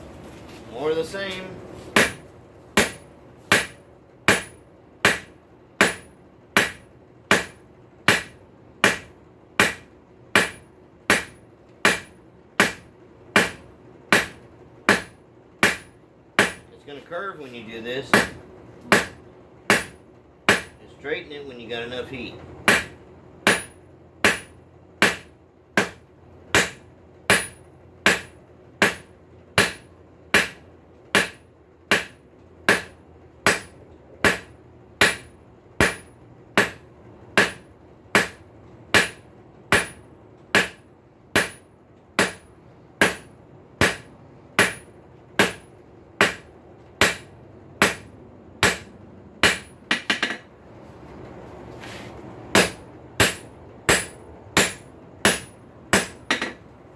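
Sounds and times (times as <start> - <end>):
hammer striking steel on anvil: 2.0 - 2.2, 2.8 - 16.7, 18.0 - 20.8, 22.7 - 30.6, 31.2 - 36.8, 37.4 - 40.8, 41.4 - 41.6, 42.2 - 50.5, 52.5 - 56.6.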